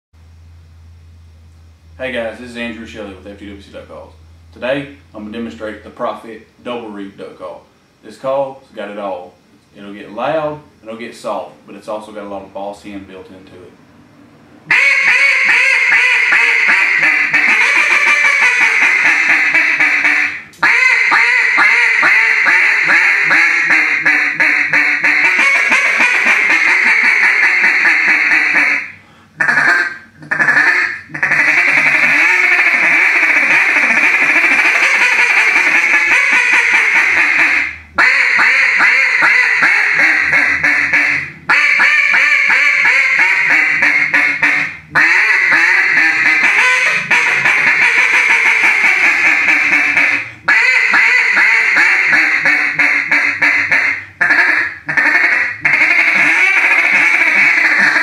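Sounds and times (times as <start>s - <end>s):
duck call quacking: 14.7s - 58.0s.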